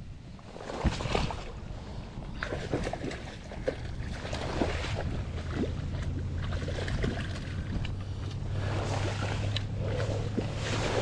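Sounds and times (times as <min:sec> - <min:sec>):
wind rumble on microphone: 0:00.0 - 0:11.0
fish splashing at water surface: 0:02.4 - 0:11.0.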